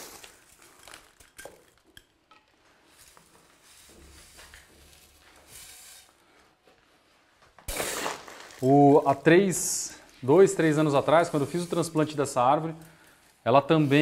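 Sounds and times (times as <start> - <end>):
faint scraping and pouring: 8.1 - 14.0.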